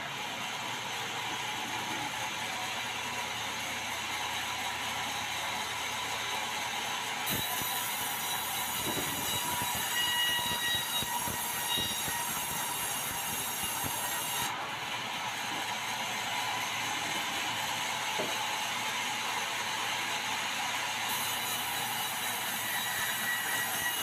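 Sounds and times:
band saw running: 0:00.3 - 0:24.0
band saw cutting board: 0:06.7 - 0:14.6, 0:15.2 - 0:24.0.

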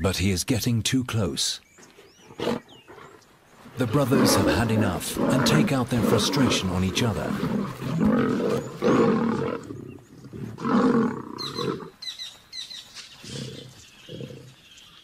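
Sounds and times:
lions roaring and fighting: 0:02.0 - 0:12.0.

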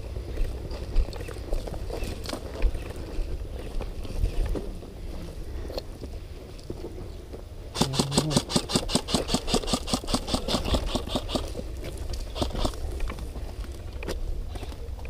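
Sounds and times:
airsoft rifle automatic fire: 0:07.8 - 0:11.6, 0:12.3 - 0:12.8.

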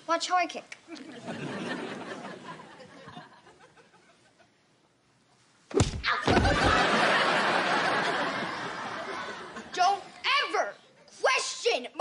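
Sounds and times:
audience laughter: 0:01.0 - 0:04.5, 0:06.3 - 0:09.7
loud thud: 0:05.7 - 0:06.9.

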